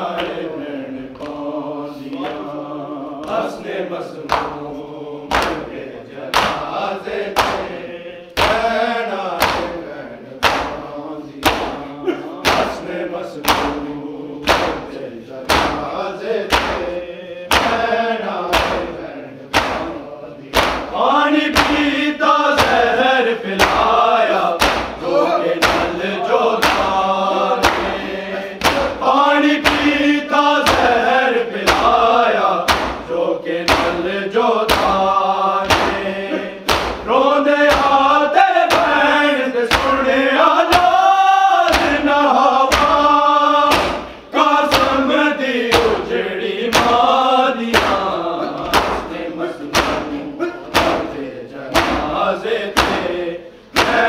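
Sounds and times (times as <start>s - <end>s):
group chanting a lament: 0.0s - 54.0s
chest-beating thumps: 5.3s - 5.7s, 8.4s - 8.8s, 10.4s - 17.9s, 18.5s - 23.0s, 23.6s - 37.1s, 37.7s - 38.1s, 38.7s - 40.1s, 41.7s - 45.1s, 45.7s - 54.0s.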